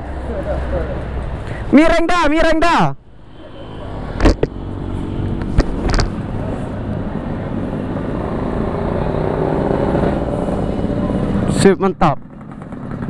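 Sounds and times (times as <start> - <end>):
road traffic: 0.0 - 13.0.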